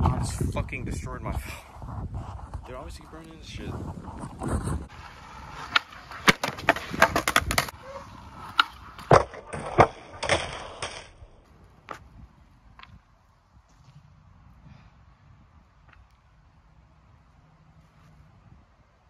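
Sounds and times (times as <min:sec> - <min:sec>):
skateboard wheels rolling: 0:01.4 - 0:14.5
skateboard clacking on concrete: 0:04.2 - 0:11.2.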